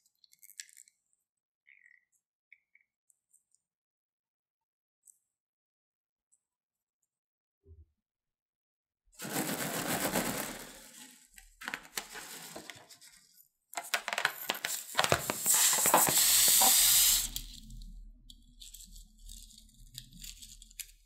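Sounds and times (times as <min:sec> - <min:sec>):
balloon rubbing and clicking: 0:13.8 - 0:17.5.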